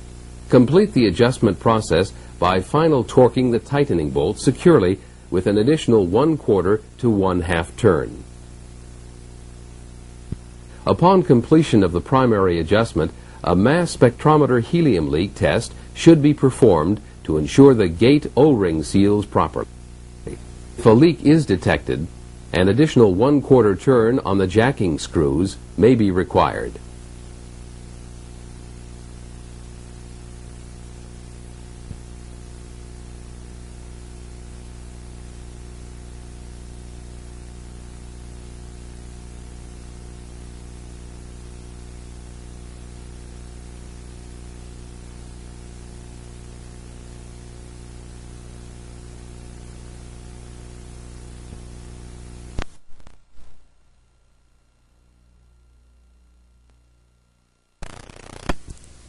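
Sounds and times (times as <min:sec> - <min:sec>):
low electrical hum: 0:00.0 - 0:59.0
tape hiss: 0:00.0 - 0:59.0
sharp crackles: 0:52.5 - 0:53.7, 0:57.8 - 0:59.0.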